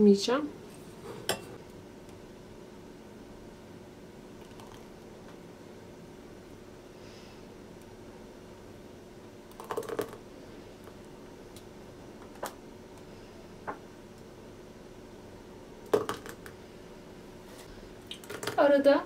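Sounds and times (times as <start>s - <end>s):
faint steady hum: 0.0s - 19.0s
ladle clinking against pot and cups: 1.2s - 1.6s.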